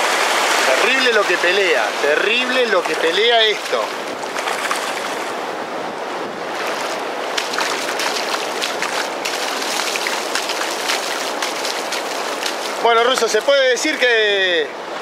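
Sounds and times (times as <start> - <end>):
surf washing on beach: 0.0 - 15.0
fish splashing in shallows: 6.5 - 12.9.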